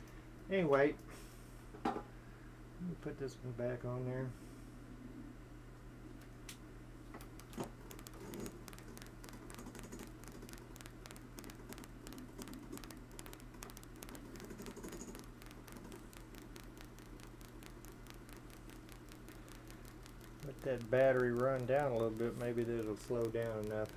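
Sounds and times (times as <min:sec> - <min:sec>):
steady low hum: 0:00.0 - 0:23.9
rotary switch contacts clicking: 0:07.2 - 0:23.9.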